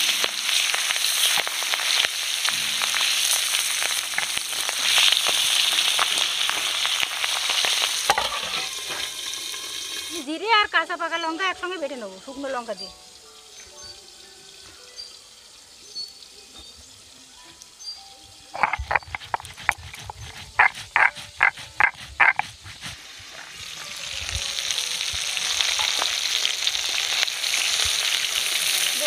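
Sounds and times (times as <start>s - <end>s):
oil sizzling: 0.0s - 29.0s
stone roller scraping grinding stone: 18.6s - 23.0s.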